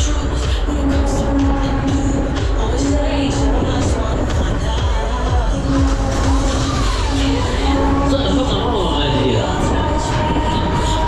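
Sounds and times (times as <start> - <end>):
loud music from sound system: 0.0 - 11.0
rumble of spinning ride: 0.0 - 11.0.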